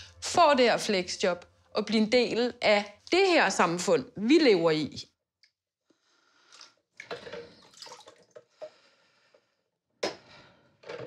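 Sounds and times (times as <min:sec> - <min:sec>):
water splashing and sloshing: 0:06.4 - 0:08.8.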